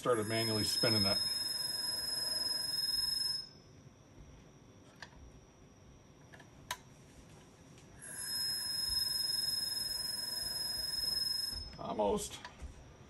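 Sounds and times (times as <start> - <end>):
hard drive motor whine: 0.0 - 6.2, 8.0 - 12.2.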